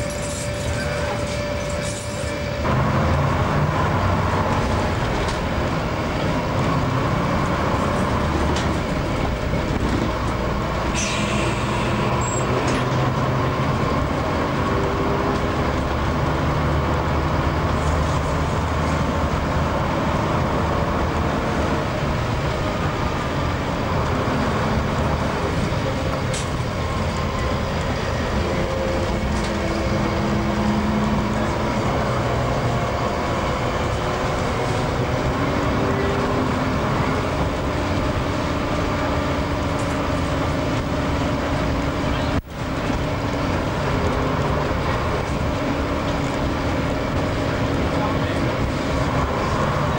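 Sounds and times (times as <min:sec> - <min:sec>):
bus engine running: 0:00.0 - 0:49.9
road noise and body rattle: 0:00.0 - 0:49.9.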